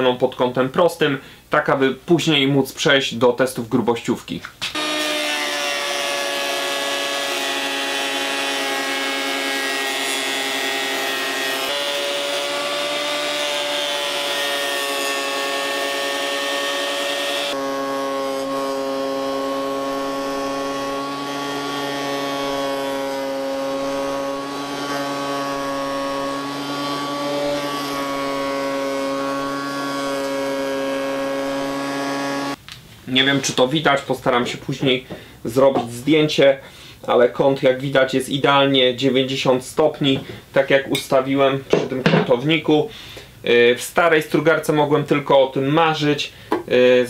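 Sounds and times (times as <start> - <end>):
jointer-planer whine: 4.7 - 32.6.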